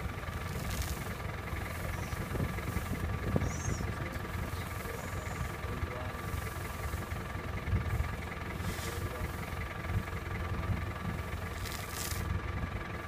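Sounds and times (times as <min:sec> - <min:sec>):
vehicle engine idling: 0:00.0 - 0:13.0
brief rustle: 0:00.5 - 0:01.1, 0:11.6 - 0:12.3.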